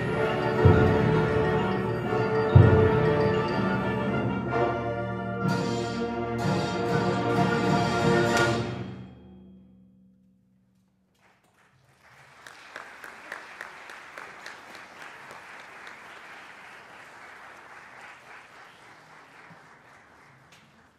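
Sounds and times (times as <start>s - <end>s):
audience applause: 11.2s - 20.9s.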